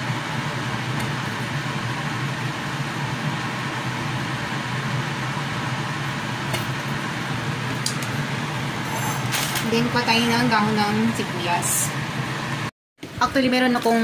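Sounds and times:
pot of water boiling: 0.0s - 9.4s.

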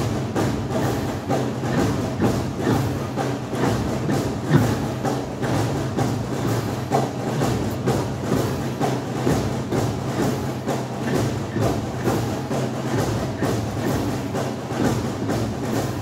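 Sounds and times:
marching drum beat: 0.0s - 16.0s.

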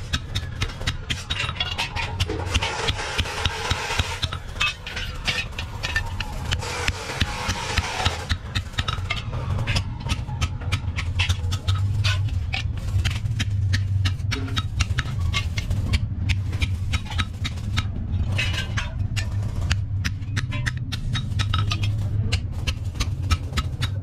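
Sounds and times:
low machinery hum: 0.0s - 24.0s
hammer striking steel bar: 13.7s - 22.4s.

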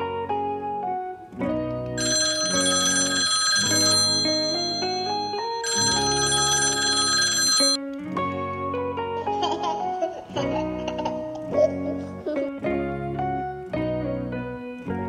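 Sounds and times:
background music: 0.0s - 15.0s
alarm clock ringing: 2.0s - 7.8s.

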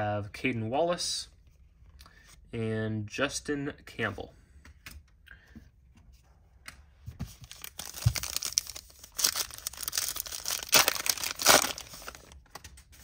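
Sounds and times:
wrapper tearing and crinkling: 7.4s - 12.4s.

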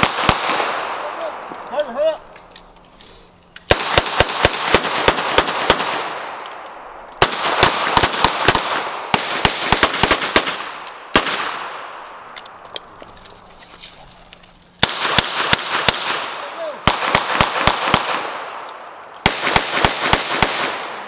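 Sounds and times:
revolver gunshots: 0.0s - 1.4s, 3.7s - 6.4s, 7.2s - 12.0s, 14.8s - 21.0s.

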